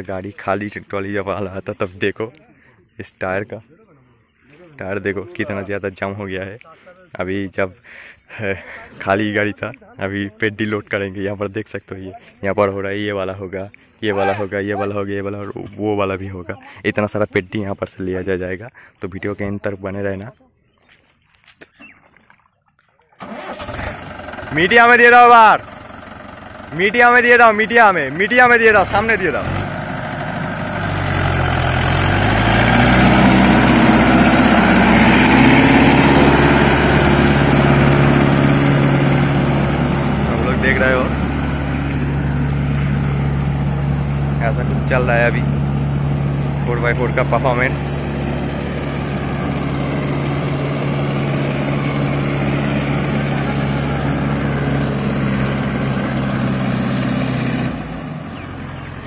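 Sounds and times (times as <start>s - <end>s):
tractor diesel engine under load: 0.0s - 20.2s, 23.2s - 59.0s
wheels churning mud: 19.2s - 59.0s.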